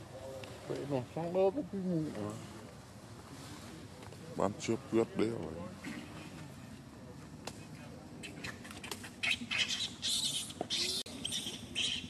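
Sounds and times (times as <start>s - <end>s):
faint low murmur: 0.0s - 9.2s
baby monkey squeaking: 8.2s - 12.0s.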